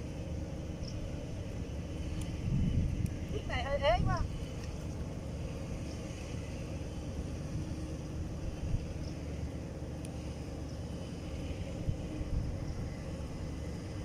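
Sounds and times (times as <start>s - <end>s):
wind rumble on microphone: 0.8s - 6.5s, 7.2s - 9.4s, 11.2s - 14.0s.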